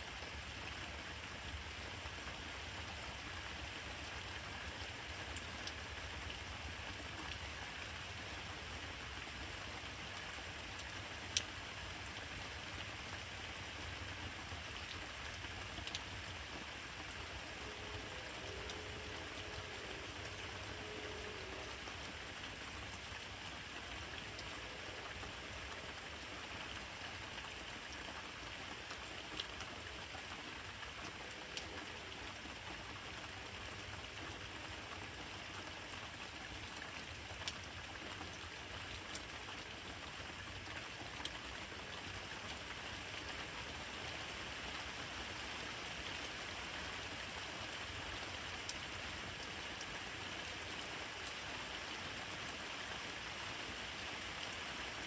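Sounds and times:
steady rain hiss: 0.0s - 55.0s
raindrop ticks: 5.3s - 6.4s, 10.7s - 11.6s, 14.7s - 23.2s, 33.2s - 43.4s, 48.6s - 49.9s.

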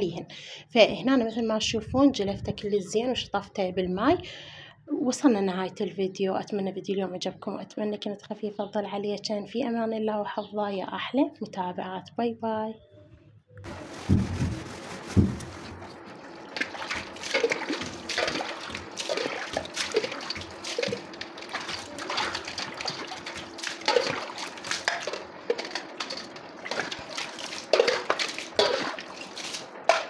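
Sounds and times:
dull thumps: 13.7s - 15.9s
water splashing and swishing: 13.7s - 30.0s.

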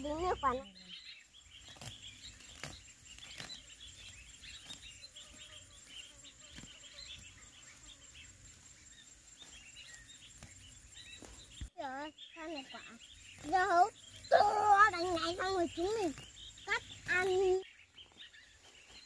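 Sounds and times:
high-pitched insect whine: 0.0s - 11.7s
birds and insects chirping: 0.0s - 19.0s.

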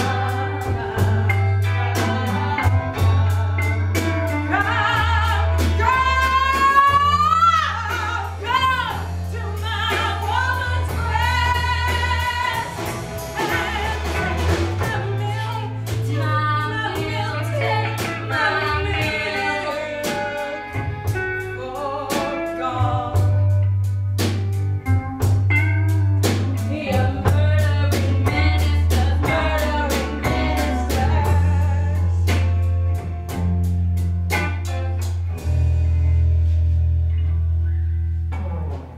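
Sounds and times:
drum beat: 0.0s - 16.4s
woman singing blues: 0.0s - 23.8s, 25.5s - 33.0s
bass notes: 0.0s - 38.9s.

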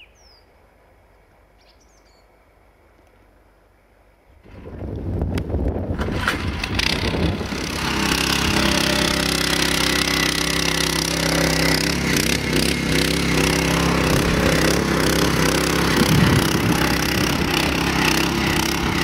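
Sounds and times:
cultivator petrol engine running: 4.4s - 19.0s.

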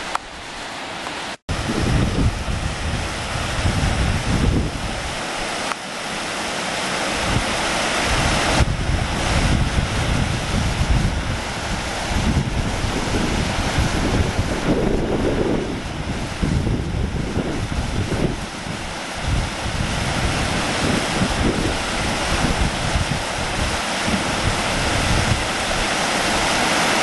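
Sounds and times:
stream rushing over rocks: 0.0s - 27.0s
wind buffeting microphone: 1.5s - 5.6s, 7.1s - 26.8s.

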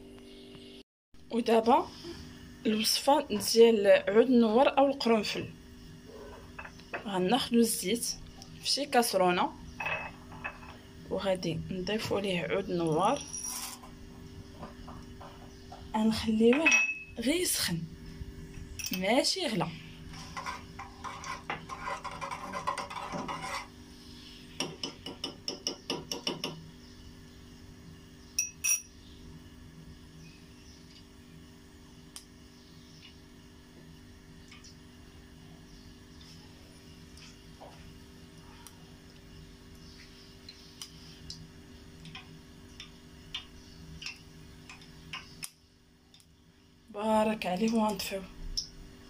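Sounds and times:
steady low hum: 0.0s - 49.0s
spoon clinking on metal: 16.5s - 17.1s, 28.4s - 28.9s
metal spoon stirring in saucepan: 20.1s - 23.7s.

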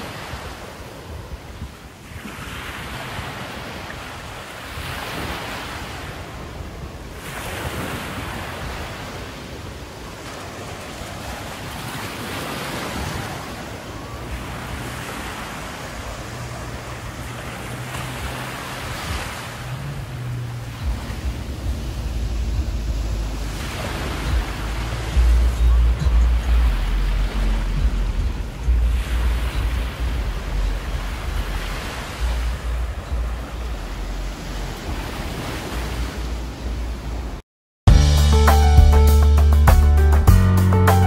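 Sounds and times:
surf breaking on beach: 0.0s - 33.6s
wind on microphone: 0.0s - 37.4s
low rumble: 19.9s - 31.2s.

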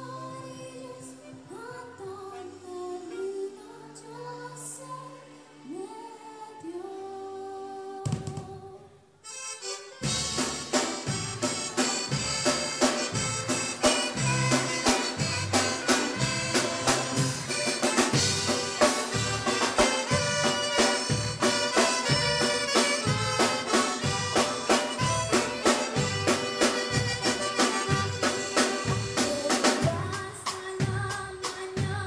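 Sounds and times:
saxophones playing melody: 9.2s - 29.8s
bass guitar: 10.0s - 32.0s
drum kit beat: 10.0s - 32.0s.

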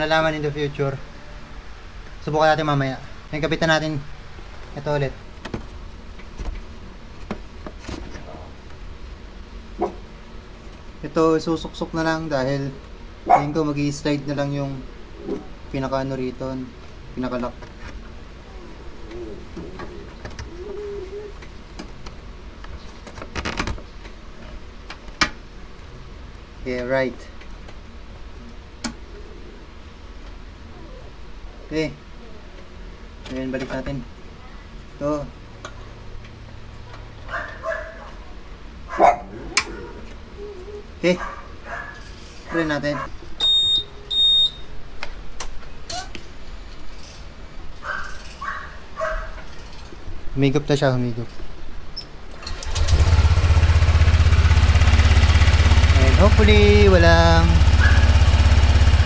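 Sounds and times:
scooter high-pitched beeps: 43.4s - 44.7s.

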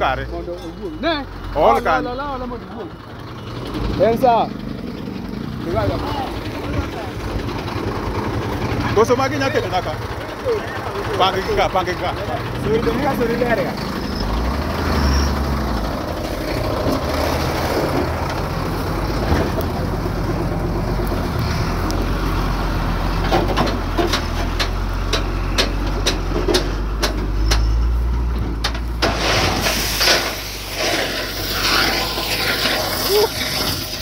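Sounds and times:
truck engine rumbling: 0.0s - 34.0s
hissing rush: 29.0s - 34.0s.

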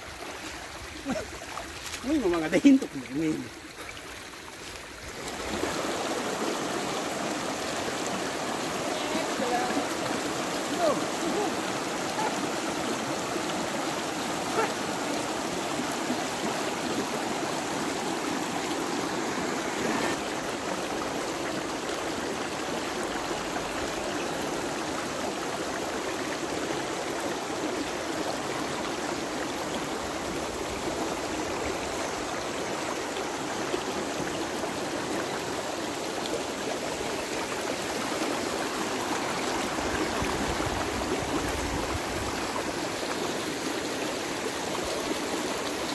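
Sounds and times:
river water rushing: 0.0s - 45.9s.

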